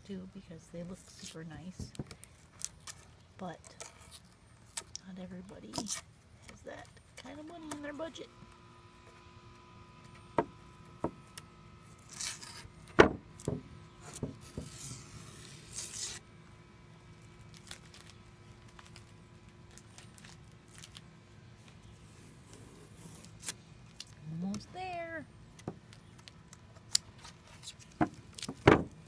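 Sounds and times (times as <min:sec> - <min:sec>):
tape peeling off: 0:01.0 - 0:09.2, 0:11.2 - 0:16.5, 0:17.1 - 0:24.6, 0:25.4 - 0:29.0
knocks against wood: 0:13.0 - 0:13.6, 0:28.0 - 0:29.0.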